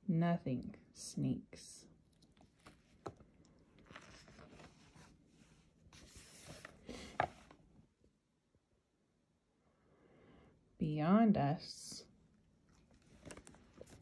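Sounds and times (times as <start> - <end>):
book pages rustling: 2.2 - 7.6, 12.7 - 14.0.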